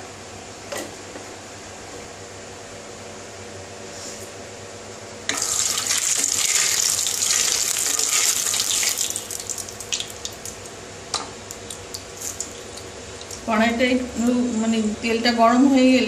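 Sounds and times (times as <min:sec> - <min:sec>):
oil sizzling in a wok: 0:05.3 - 0:10.4.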